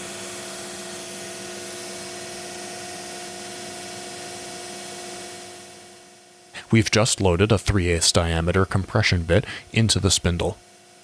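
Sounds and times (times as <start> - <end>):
cnc router machine whine: 0.0 - 6.5.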